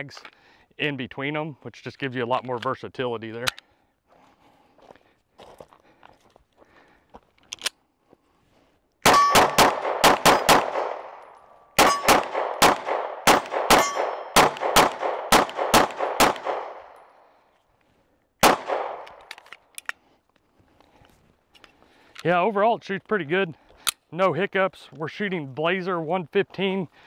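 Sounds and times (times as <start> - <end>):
pistol shots: 9.0 - 17.0, 18.4 - 19.3
steel targets ringing: 9.1 - 9.6, 11.8 - 12.1, 13.7 - 14.4.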